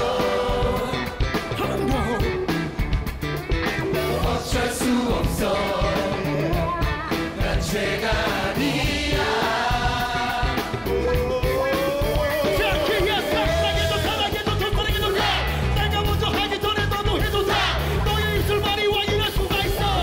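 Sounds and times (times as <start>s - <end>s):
mass choir singing: 0.0s - 1.4s, 3.8s - 15.9s, 17.2s - 18.2s
live band playing pop song: 0.0s - 20.0s.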